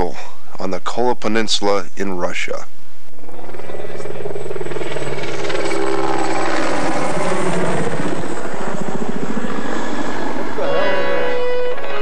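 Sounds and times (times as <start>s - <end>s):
helicopter rotor chopping: 3.2s - 12.0s.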